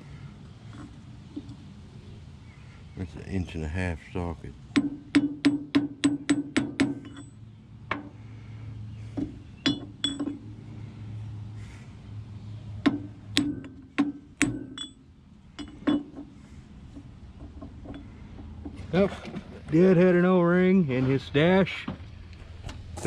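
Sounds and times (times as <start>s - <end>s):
steel tools clinking on metal: 7.0s - 7.4s, 9.6s - 10.4s.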